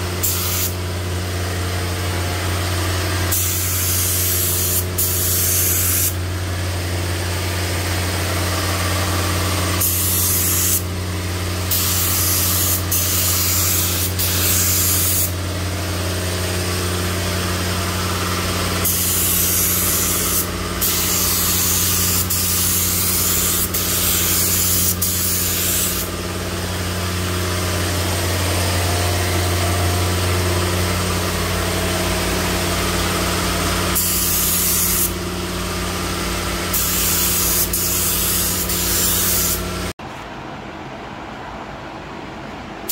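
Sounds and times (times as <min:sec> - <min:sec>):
paint spray gun hissing: 0:00.0 - 0:00.8, 0:03.2 - 0:06.2, 0:09.0 - 0:11.0, 0:11.6 - 0:35.3, 0:36.2 - 0:39.9
steady low hum: 0:00.0 - 0:42.9.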